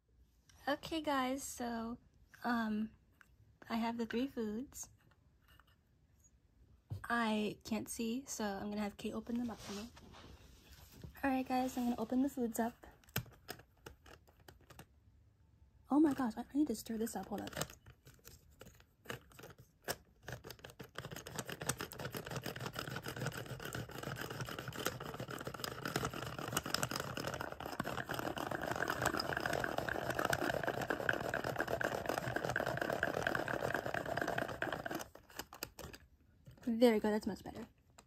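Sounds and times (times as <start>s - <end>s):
stirring in a plastic cup: 17.1s - 36.7s.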